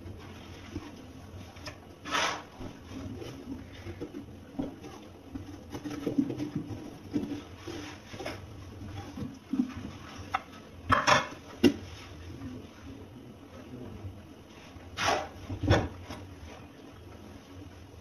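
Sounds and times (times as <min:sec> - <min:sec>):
metal ladle scraping pumpkin: 0:02.0 - 0:04.1.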